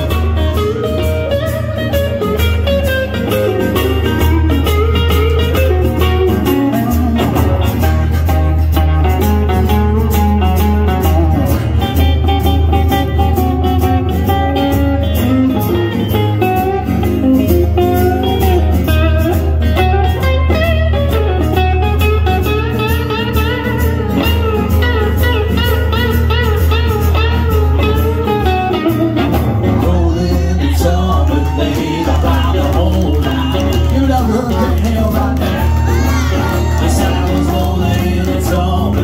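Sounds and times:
electric guitar lead with bent notes: 0.0s - 39.0s
strummed acoustic guitar: 0.0s - 39.0s.

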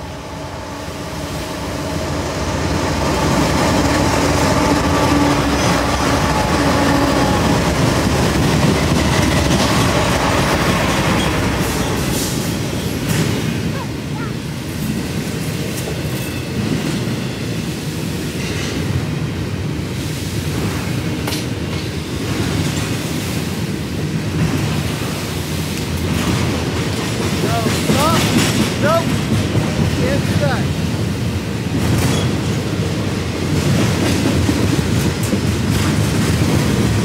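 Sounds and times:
diesel locomotive passing: 0.0s - 37.0s
steel wheels rumbling on rail: 0.0s - 37.0s
train clicks and clanks: 0.0s - 37.0s.

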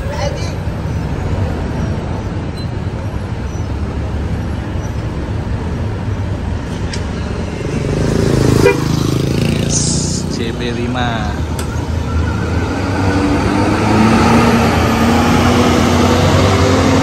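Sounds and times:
bus diesel engine rumbling: 0.0s - 17.0s
short horn toot: 8.6s - 9.0s.

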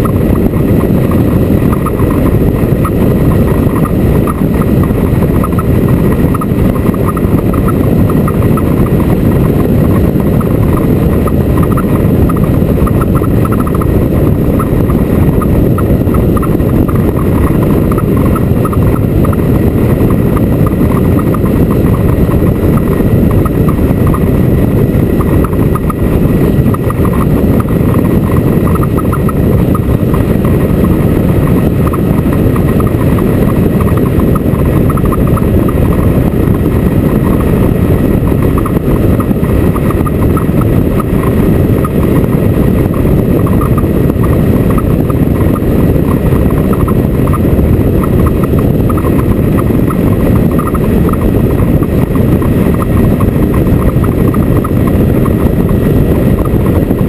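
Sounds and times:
motorcycle engine: 0.0s - 57.0s
road noise: 0.0s - 57.0s.

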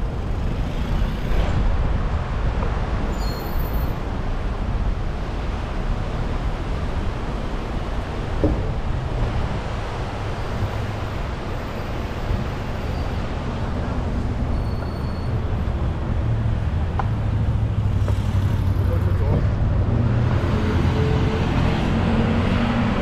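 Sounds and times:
cars passing: 3.9s - 23.0s.

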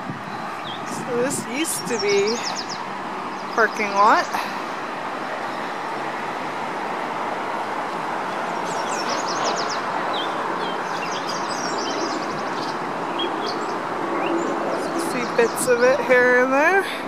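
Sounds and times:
steady rushing outdoor roar: 0.0s - 17.0s
small birds chirping: 0.6s - 4.8s, 8.3s - 15.8s.

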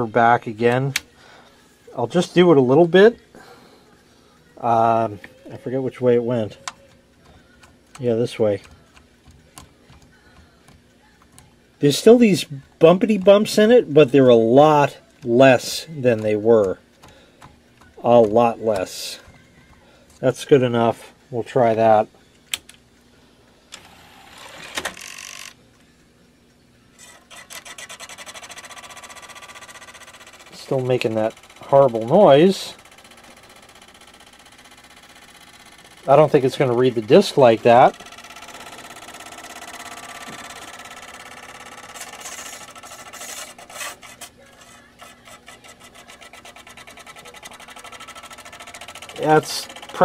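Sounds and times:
drive clicking and scraping: 27.0s - 50.0s
rasping bursts: 38.0s - 50.0s.

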